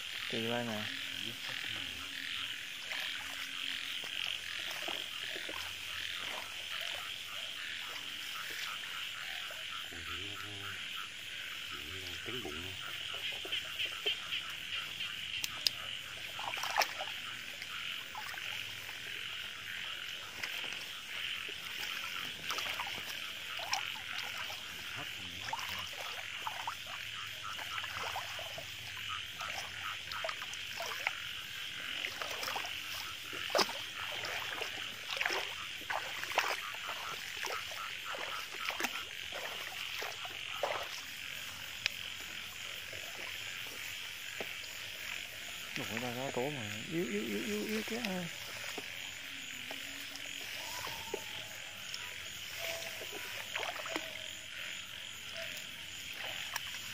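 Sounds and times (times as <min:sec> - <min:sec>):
frogs trilling: 0:00.0 - 0:56.9.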